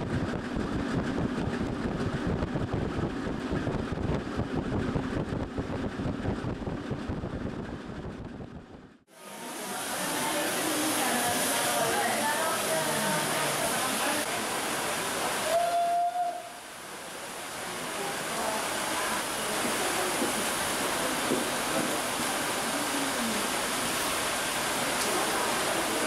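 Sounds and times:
steam locomotive venting steam: 9.2 - 26.0.

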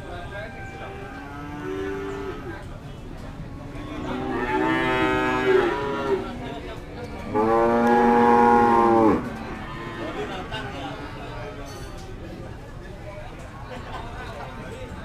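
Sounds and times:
cattle mooing: 4.0 - 6.4, 7.3 - 10.2.

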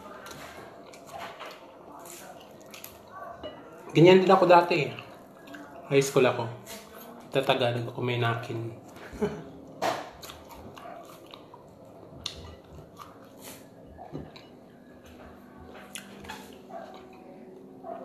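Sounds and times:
person chewing food: 0.0 - 4.0, 4.9 - 5.9, 8.8 - 18.0.

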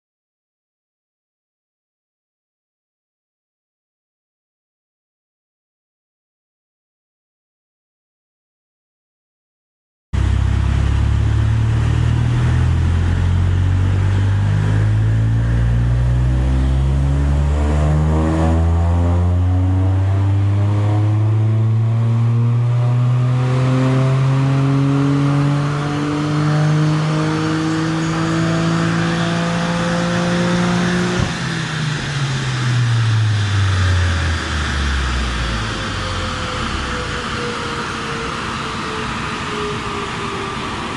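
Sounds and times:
car engine revving: 10.2 - 40.5.

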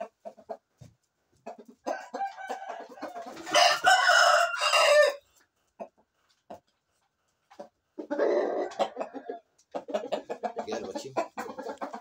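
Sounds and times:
rooster crowing: 1.9 - 5.2.

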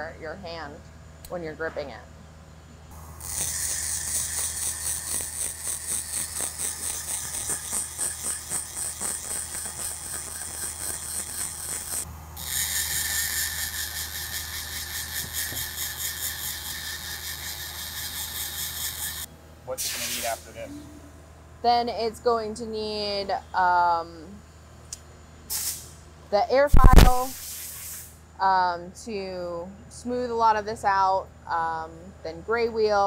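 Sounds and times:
die grinder whining: 3.2 - 19.3.

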